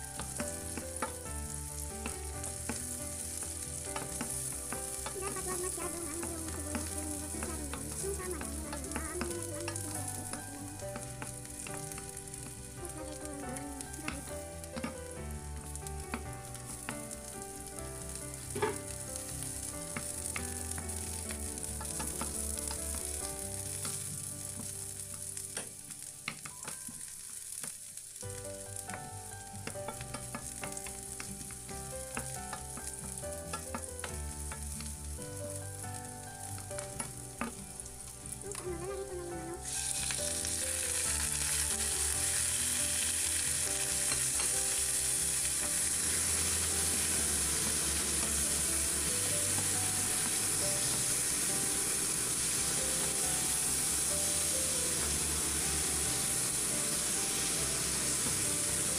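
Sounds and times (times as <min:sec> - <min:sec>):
onions sizzling in a pan: 0:00.0 - 0:58.9
wooden spatula scraping a pan: 0:00.1 - 0:27.8, 0:28.6 - 0:35.0
spatula knocking on pan: 0:00.2 - 0:12.6, 0:18.5 - 0:18.9, 0:21.6 - 0:23.2, 0:28.8 - 0:35.0.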